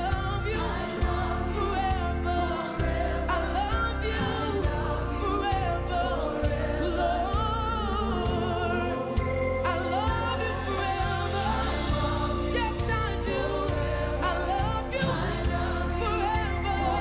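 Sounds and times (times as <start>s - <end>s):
live band with bass and drums: 0.0s - 17.0s.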